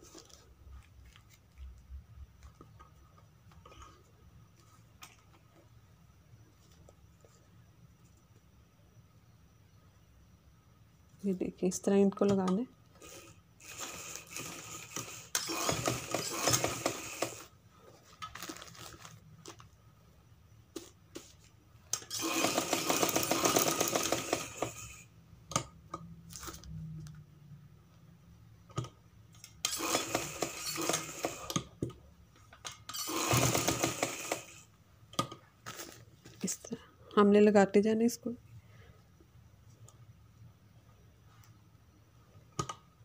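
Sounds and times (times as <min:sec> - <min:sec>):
sewing machine stitching: 0:13.0 - 0:17.5, 0:22.0 - 0:25.0, 0:29.6 - 0:31.7, 0:32.9 - 0:34.7.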